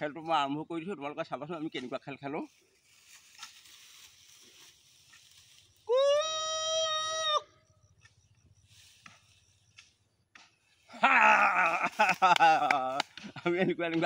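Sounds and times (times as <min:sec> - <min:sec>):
man's long high call: 0:05.8 - 0:07.6, 0:10.9 - 0:13.0.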